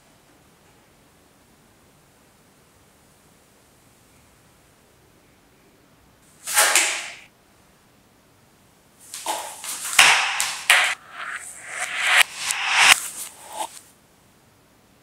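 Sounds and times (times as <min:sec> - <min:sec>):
fabric swish: 0:09.2 - 0:13.8.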